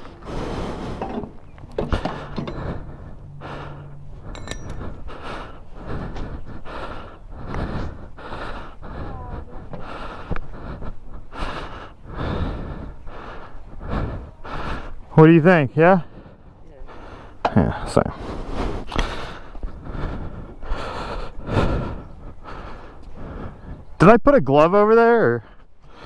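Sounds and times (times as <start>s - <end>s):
man breathing hard: 0.0s - 24.0s, 25.4s - 26.0s.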